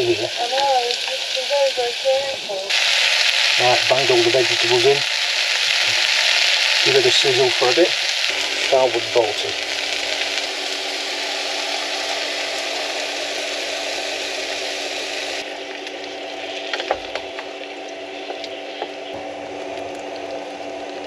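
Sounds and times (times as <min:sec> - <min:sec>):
vegetables sizzling in a saucepan: 0:00.0 - 0:15.5
steady hum: 0:00.0 - 0:21.0
sauce bubbling: 0:02.7 - 0:21.0.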